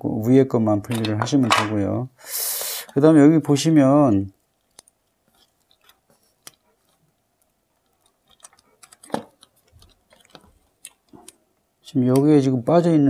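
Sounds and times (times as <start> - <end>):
clicks and taps of plastic housing: 0.9 - 1.8.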